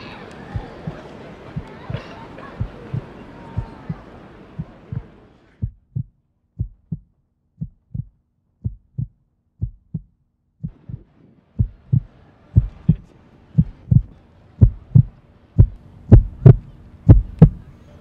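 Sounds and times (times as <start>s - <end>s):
background ambience: 0.0s - 5.8s, 10.6s - 18.0s
heartbeat thumps: 0.5s - 4.0s, 4.6s - 17.6s.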